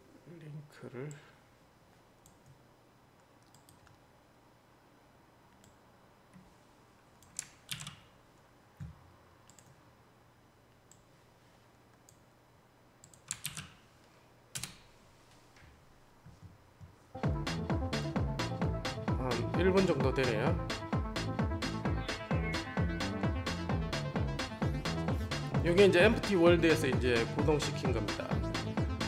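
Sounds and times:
mouse and keyboard clicks: 7.2 - 8.1.

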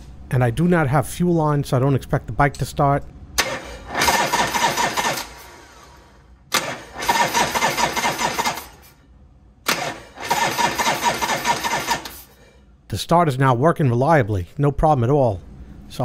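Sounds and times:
motorcycle engine cranking: 3.4 - 5.9, 6.5 - 8.9, 9.7 - 12.3.

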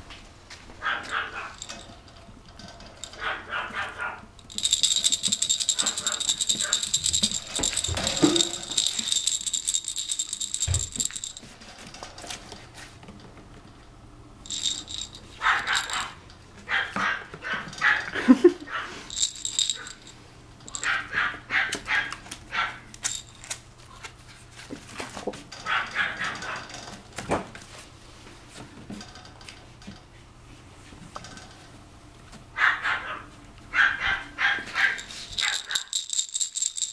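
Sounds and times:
puppy yapping: 0.8 - 1.6, 3.2 - 4.2, 20.8 - 22.9, 32.6 - 35.6
toy rattle shaking: 1.5 - 1.9, 3.0 - 3.2, 4.4 - 11.5, 14.4 - 16.2, 19.0 - 21.0, 23.0 - 23.6, 34.8 - 36.9.

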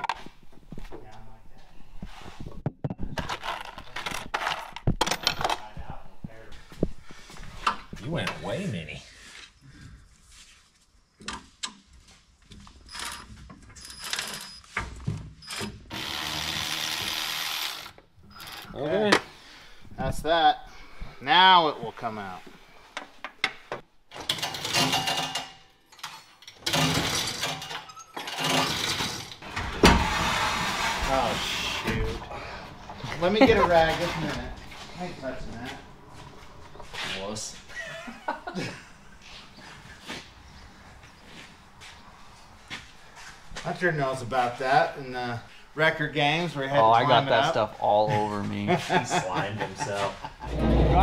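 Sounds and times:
metal tools rattling in toolbox: 24.2 - 29.4.

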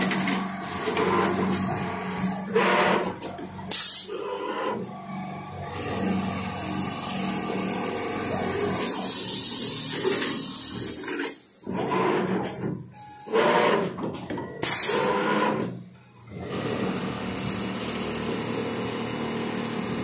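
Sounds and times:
sewing machine hum: 0.0 - 12.6, 16.3 - 20.0
compressed air hiss: 8.8 - 11.2.

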